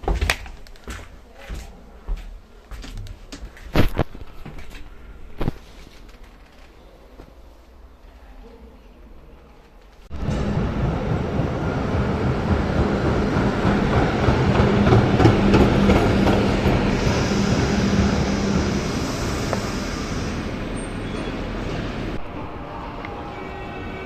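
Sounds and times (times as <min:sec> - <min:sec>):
tram wheels rumbling on rails: 0:09.8 - 0:24.0.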